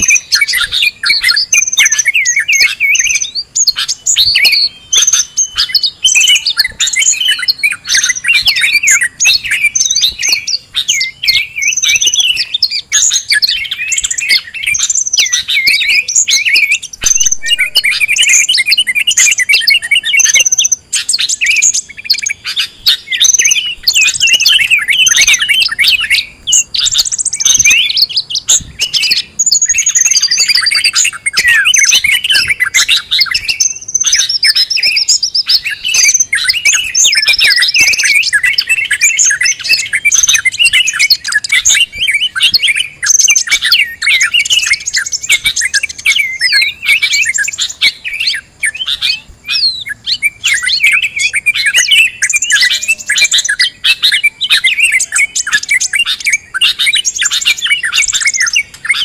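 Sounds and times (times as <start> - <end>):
songbirds chirping and trilling: 0.0 - 59.0
high piping bird note: 13.5 - 37.0.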